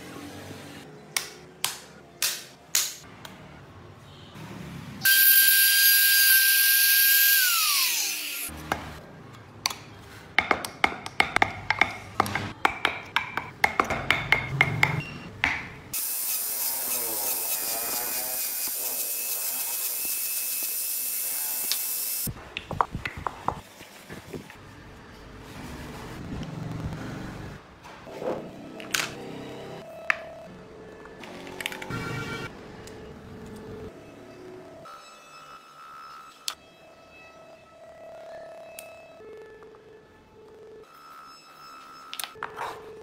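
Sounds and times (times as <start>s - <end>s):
small power tool whining: 5.0s - 8.5s.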